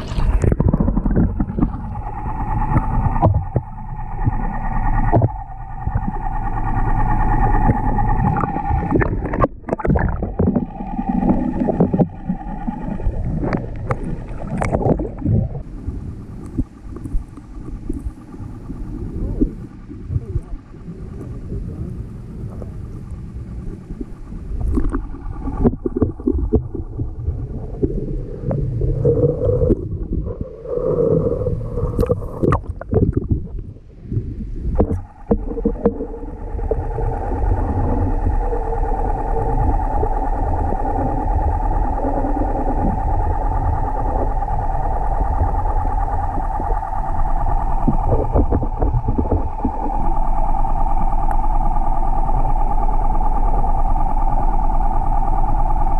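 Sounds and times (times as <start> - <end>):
muffled underwater knocks and thumps: 0.0 - 6.2, 7.6 - 15.7, 23.9 - 28.6, 32.0 - 36.9, 47.8 - 50.2
boat engine drone underwater: 0.0 - 55.9.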